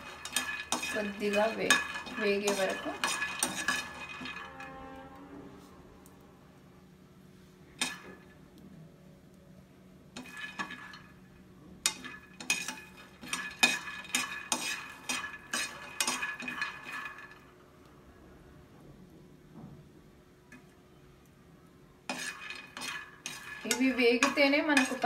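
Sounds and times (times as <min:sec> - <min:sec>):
nuts shifting in a pan: 0:00.0 - 0:05.1, 0:07.8 - 0:08.3, 0:10.1 - 0:17.7, 0:22.0 - 0:25.0
spoon scraping a frying pan: 0:00.0 - 0:05.1, 0:07.8 - 0:08.4, 0:10.1 - 0:17.5, 0:22.0 - 0:25.0.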